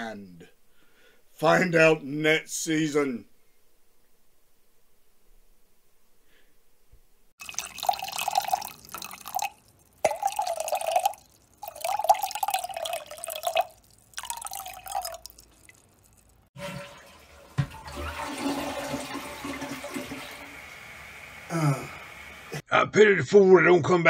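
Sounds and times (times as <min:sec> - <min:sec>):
water splashing in spurts: 0:07.4 - 0:22.4.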